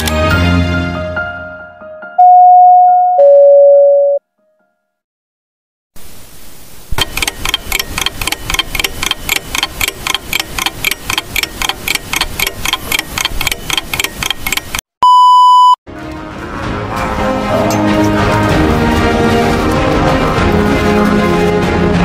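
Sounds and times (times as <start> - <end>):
test-tone beep: 2.2 - 4.2, 15.0 - 15.8
static hiss: 6.0 - 12.7
fast even ticking: 7.0 - 14.8.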